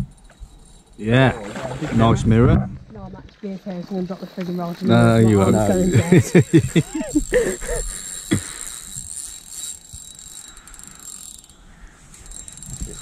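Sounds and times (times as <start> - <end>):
fishing reel clicking rapidly: 0.0 - 1.2, 5.0 - 13.0.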